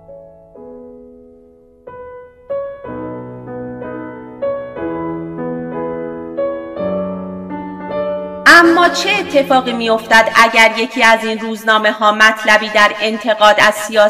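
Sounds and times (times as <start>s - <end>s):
slow piano music: 0.0s - 10.4s.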